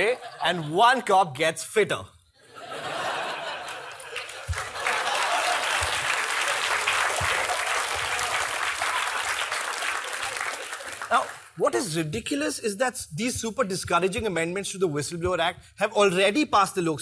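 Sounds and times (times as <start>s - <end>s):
studio audience applauding: 3.6s - 11.7s.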